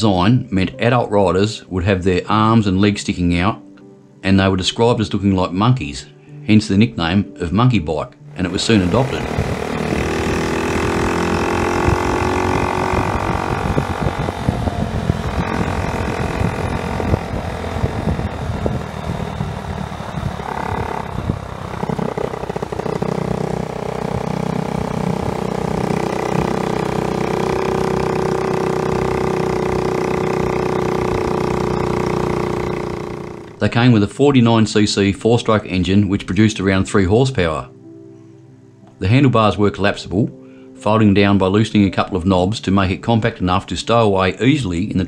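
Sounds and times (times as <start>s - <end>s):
small motorcycle engine revving: 8.3s - 33.7s.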